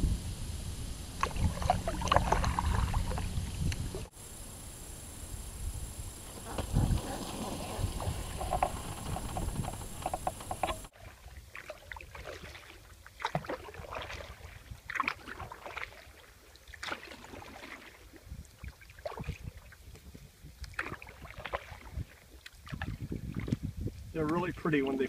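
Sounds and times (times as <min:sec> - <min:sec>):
paddle splashing in water: 0:01.2 - 0:04.1, 0:06.2 - 0:23.6
water dripping: 0:01.2 - 0:04.1.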